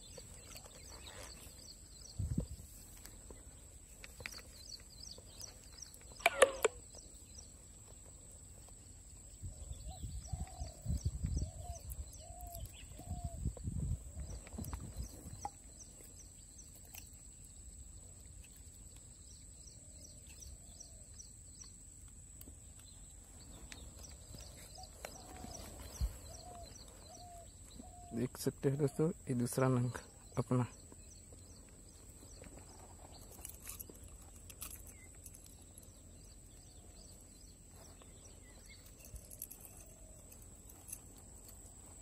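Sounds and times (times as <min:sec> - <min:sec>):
birds chirping: 0:00.0 - 0:42.0
loud bird call: 0:06.1 - 0:06.8.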